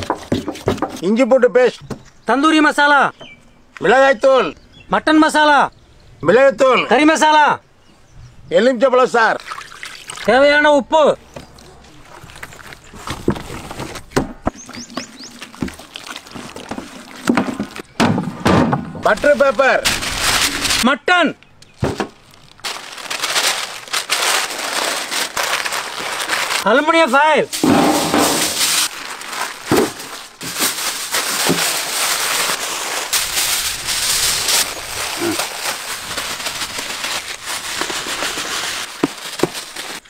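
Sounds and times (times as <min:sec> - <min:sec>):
hands squelching wet paste: 0:11.4 - 0:13.7, 0:14.5 - 0:17.9
plastic bag crinkling: 0:19.1 - 0:20.8, 0:22.0 - 0:40.0.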